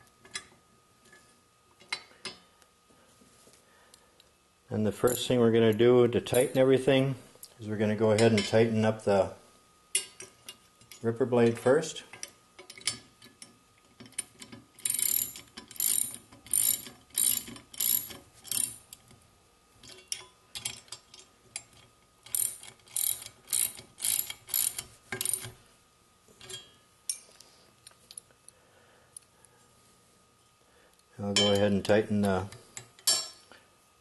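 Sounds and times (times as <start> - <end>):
ratchet wrench clicking: 14.8 - 18.8, 21.6 - 25.5.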